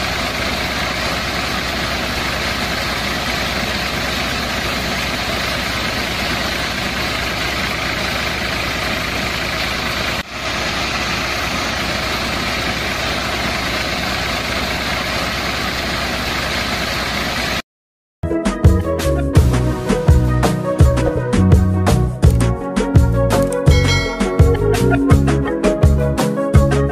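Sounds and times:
small motor driving thresher: 0.0 - 17.6.

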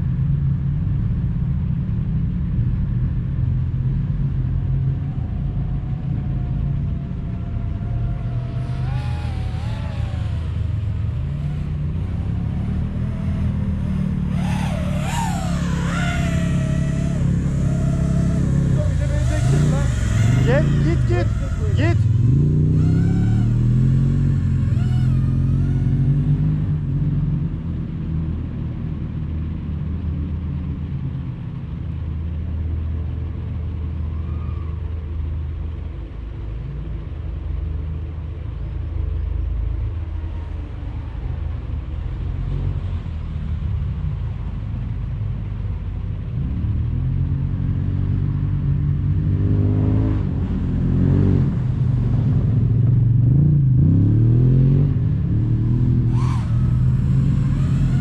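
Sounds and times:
quadcopter motors humming: 4.9 - 26.9, 56.0 - 58.0.

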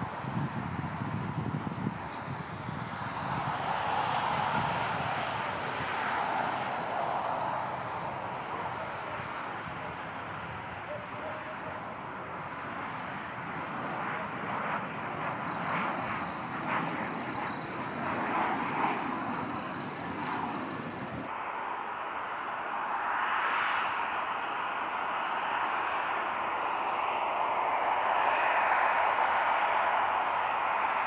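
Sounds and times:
jet engines rushing: 0.0 - 31.0.

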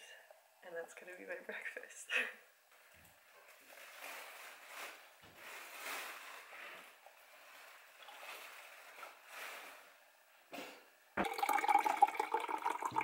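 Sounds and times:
water pouring into a glass: 11.2 - 13.0.

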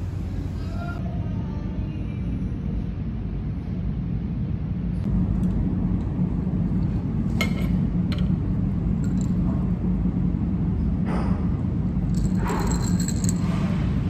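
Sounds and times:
cafe room rumble: 0.0 - 14.0
glassware and tableware clinks: 12.1 - 13.8.

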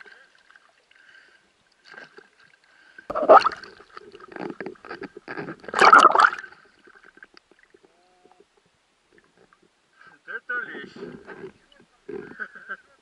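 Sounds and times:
water splashing and sloshing: 0.0 - 7.9.

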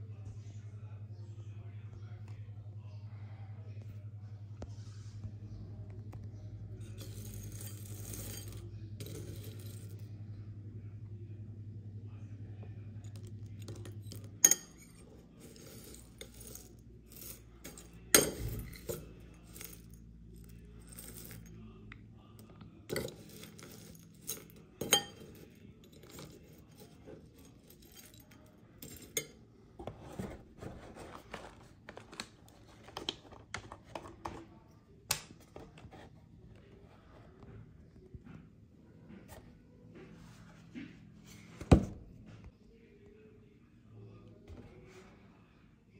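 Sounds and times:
low steady hum: 0.0 - 45.9
spoon clinking against bowl: 13.8 - 15.0, 22.9 - 25.4.

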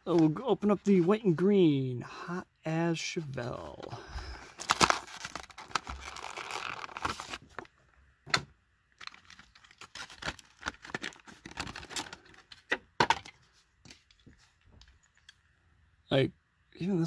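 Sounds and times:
plastic packaging crinkling and tearing: 4.4 - 7.7, 9.0 - 12.6
plastic crackles and clicks: 4.6 - 7.7.

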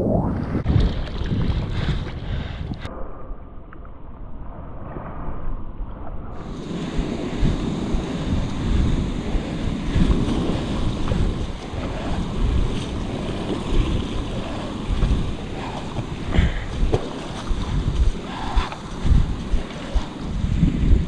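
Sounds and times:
wind buffeting microphone: 0.0 - 2.9, 4.7 - 21.0
small waves washing on sand: 6.4 - 21.0.

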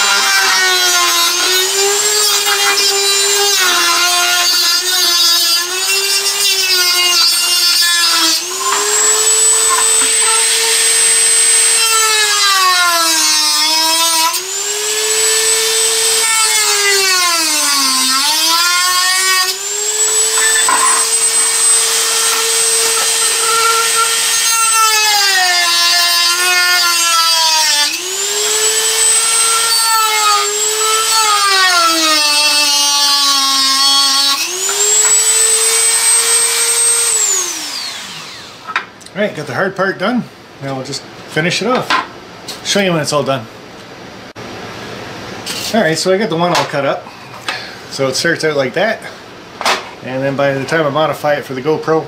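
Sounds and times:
rotary tool grinding plastic: 15.2 - 32.6.

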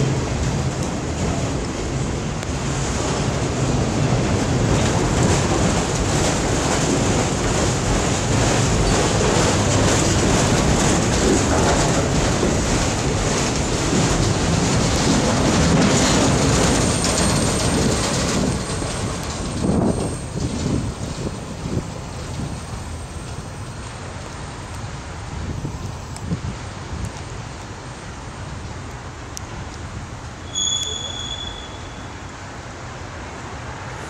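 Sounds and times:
train wheels clattering over rails: 0.0 - 24.4.

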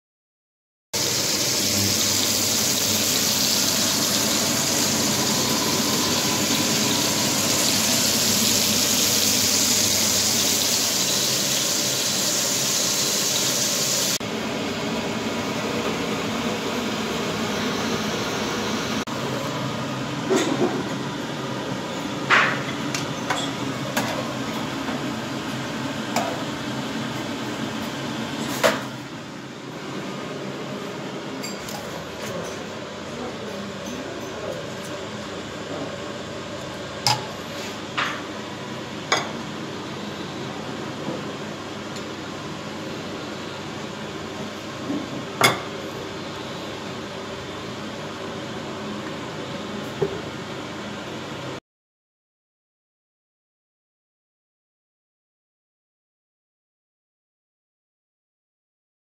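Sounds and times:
rushing kitchen hiss: 1.0 - 19.7.

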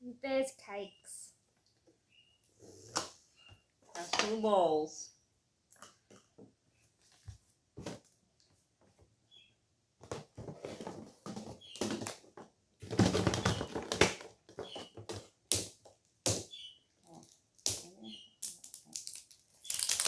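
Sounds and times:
plastic capsules rustling and crinkling: 10.1 - 15.4, 18.4 - 20.0.

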